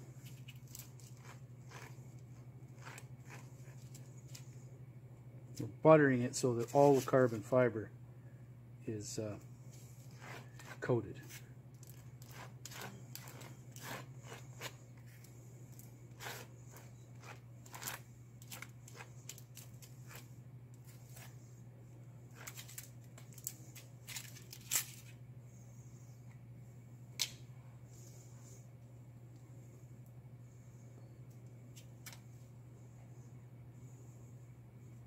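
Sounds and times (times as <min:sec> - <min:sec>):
steady low hum: 0:00.0 - 0:35.0
spreader scraping epoxy: 0:00.7 - 0:04.4, 0:10.0 - 0:20.3.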